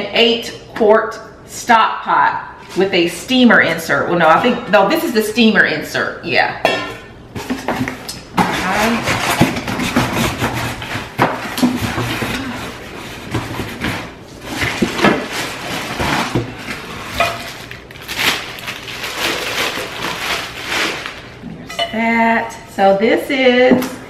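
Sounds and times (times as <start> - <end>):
cardboard and plastic rustling: 7.4 - 21.4.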